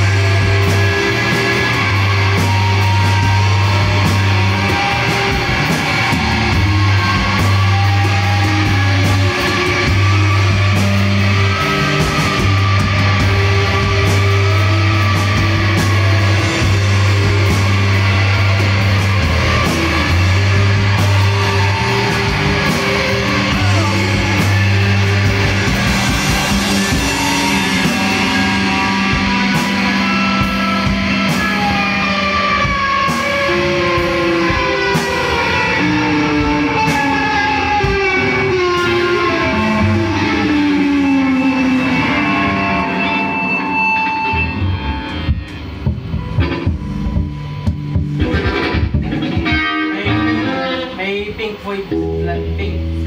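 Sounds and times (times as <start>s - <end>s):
drum kit cymbal and snare: 0.0s - 42.6s
bass guitar low notes: 0.0s - 53.0s
electric guitars: 0.0s - 53.0s.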